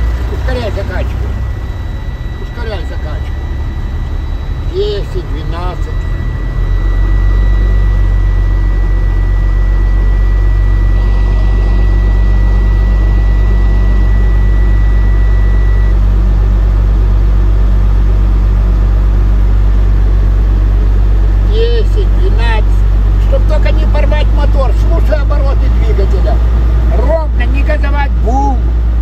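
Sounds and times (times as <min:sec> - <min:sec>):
high-pitched warning buzzer: 0:00.0 - 0:16.6
diesel truck engine running: 0:00.0 - 0:29.0.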